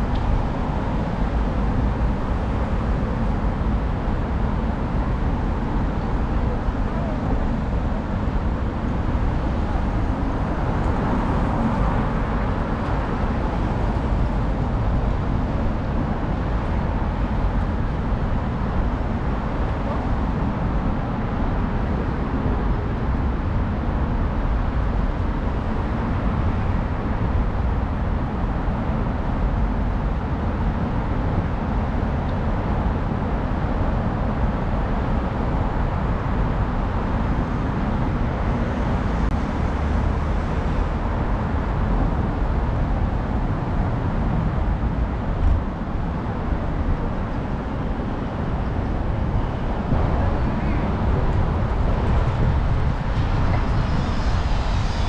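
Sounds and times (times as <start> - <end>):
road traffic hum: 0.0 - 55.0.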